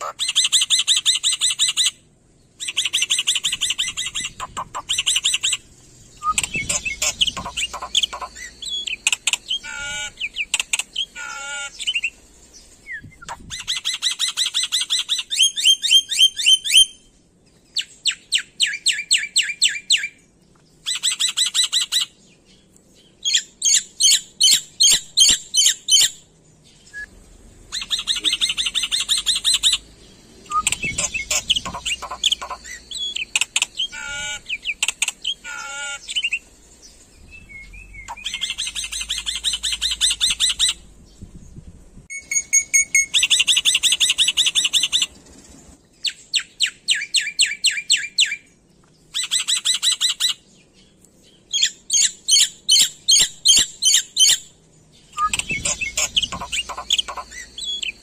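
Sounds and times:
bird harsh chattering: 0.0s - 2.0s, 2.6s - 12.2s, 27.7s - 29.9s, 30.5s - 36.4s, 38.0s - 40.8s, 55.2s - 58.0s
bird wavering whistles: 6.2s - 10.5s, 30.5s - 34.8s.

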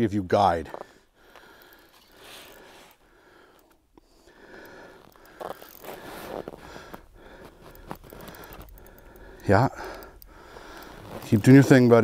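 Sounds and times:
breathing and sniffing: 0.8s - 11.3s
jacket rustle: 4.9s - 8.6s, 10.6s - 12.0s.

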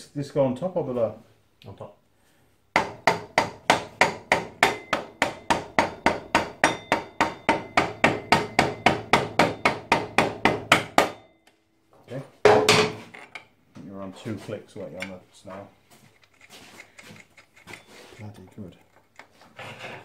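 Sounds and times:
hammer striking metal: 2.8s - 11.5s, 12.4s - 13.0s.

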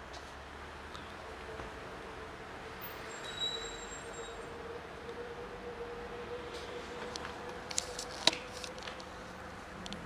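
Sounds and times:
street background hum: 0.0s - 10.0s
thin high-pitched squeal: 3.0s - 4.5s.

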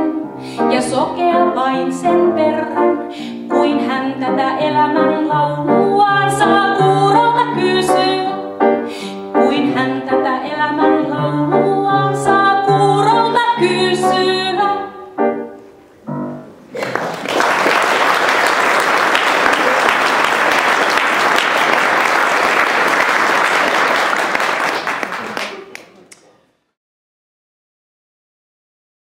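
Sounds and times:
woman singing: 0.0s - 8.5s, 9.4s - 15.1s
piano accompaniment: 0.0s - 16.8s
audience applause: 16.7s - 26.2s.

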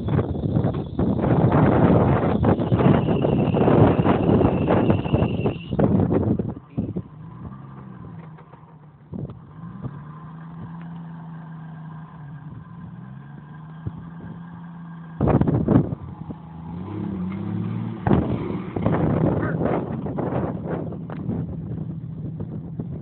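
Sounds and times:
loud noisy bursts: 0.0s - 5.8s
car engine running at low revs: 0.0s - 23.0s.

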